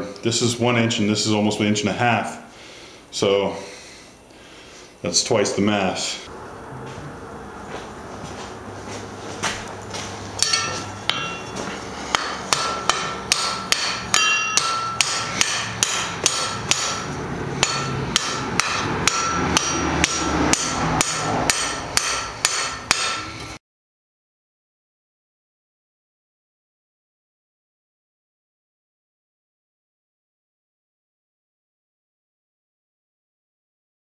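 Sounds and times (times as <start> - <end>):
hammer striking metal on anvil: 10.4 - 23.6.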